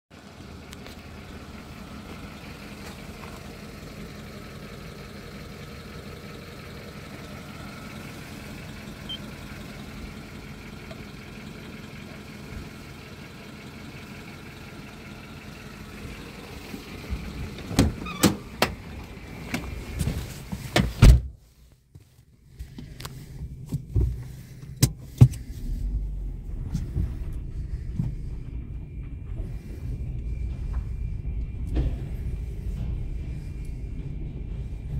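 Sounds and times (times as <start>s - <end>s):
car engine idling: 0.1s - 34.9s
low rumble with thumps: 0.2s - 5.2s, 15.5s - 21.6s, 22.3s - 34.9s.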